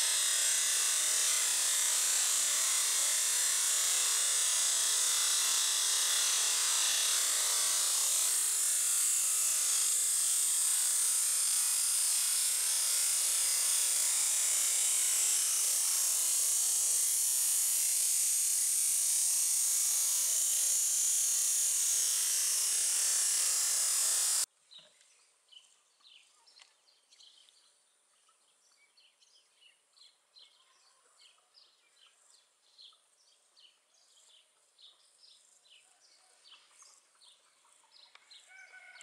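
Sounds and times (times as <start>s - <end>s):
pressure washer jet hissing: 0.0s - 24.5s.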